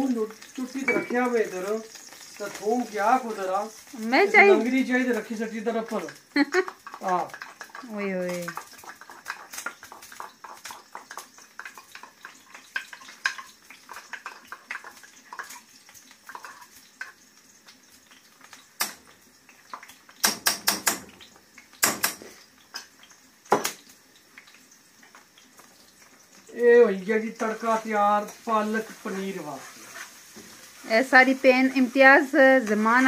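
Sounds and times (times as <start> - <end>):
garlic frying in hot oil: 0.0 - 33.0
metal utensils clinking on pots: 0.4 - 2.6.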